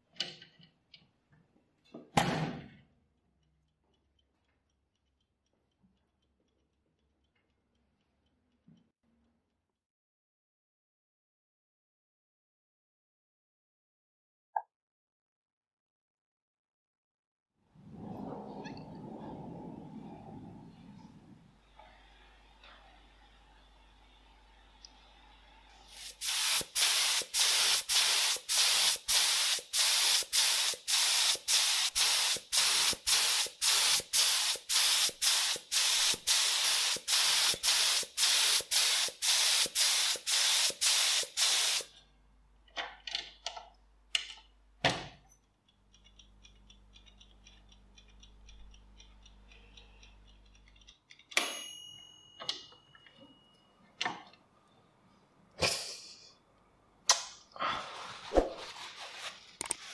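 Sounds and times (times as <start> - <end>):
aerosol spray can hissing: 25.9 - 41.9.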